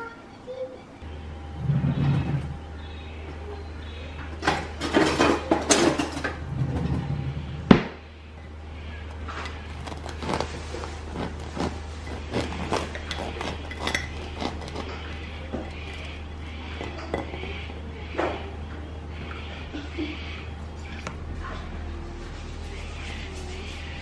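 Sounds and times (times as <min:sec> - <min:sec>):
steady low hum: 0:00.0 - 0:24.0
knife sawing through bread crust: 0:09.6 - 0:16.2
knife and plate clinking: 0:12.1 - 0:16.1.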